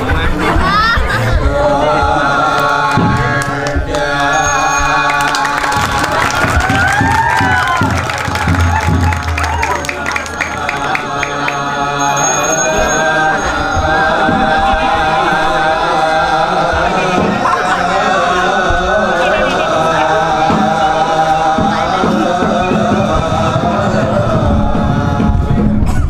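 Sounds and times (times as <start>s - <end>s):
gamelan music: 4.0s - 15.4s.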